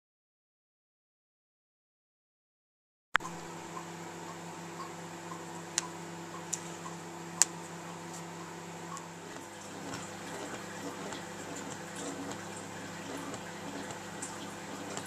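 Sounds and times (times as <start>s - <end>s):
steady low hum: 3.2s - 15.0s.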